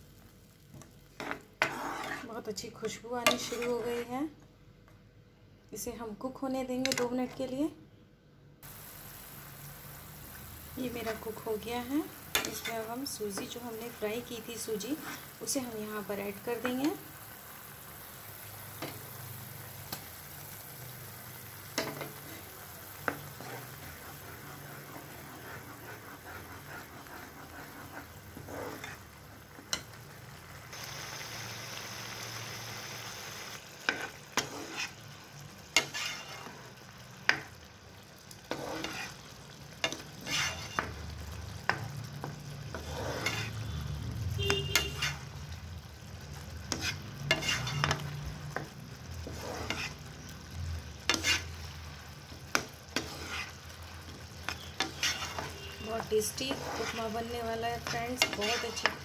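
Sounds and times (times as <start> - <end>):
spatula scraping a pan: 1.2 - 4.2, 10.8 - 17.0, 21.3 - 30.0, 33.8 - 37.5, 38.4 - 43.8, 44.4 - 45.4, 46.4 - 50.3, 50.9 - 59.0
food bubbling in a pan: 8.6 - 59.0.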